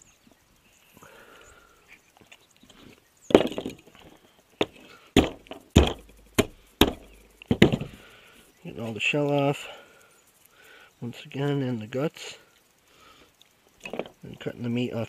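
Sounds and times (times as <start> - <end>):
hammer cracking snail shells: 3.3 - 8.1.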